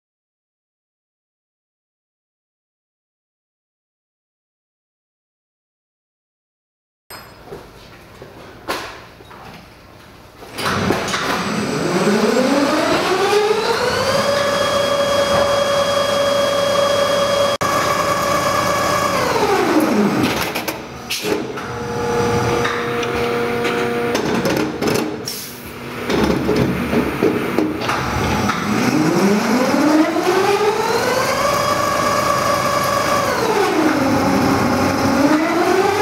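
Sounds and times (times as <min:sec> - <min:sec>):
machine clicks and knocks: 0:22.6 - 0:25.2.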